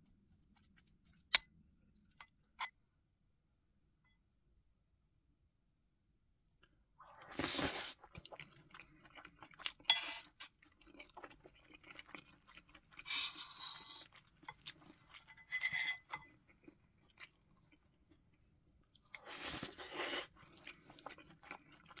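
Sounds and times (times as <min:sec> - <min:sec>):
chewing: 0:07.2 - 0:22.0
spoon scraping a ceramic plate: 0:09.9 - 0:10.4, 0:15.2 - 0:16.3.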